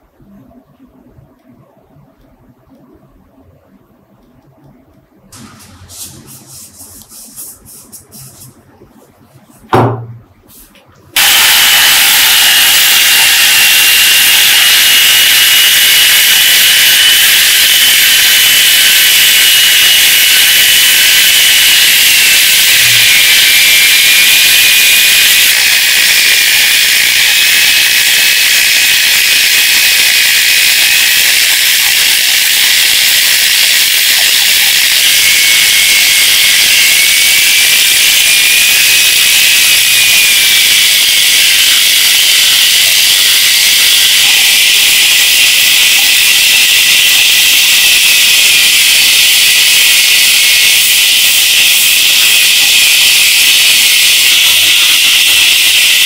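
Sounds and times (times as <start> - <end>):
thump: 9.7 - 10.2
angle grinder sanding: 11.2 - 56.0.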